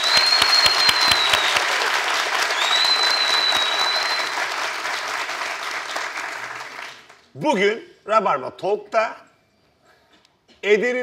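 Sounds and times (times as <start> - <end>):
long high whistle: 0.0 - 4.6
audience applauding: 0.0 - 7.3.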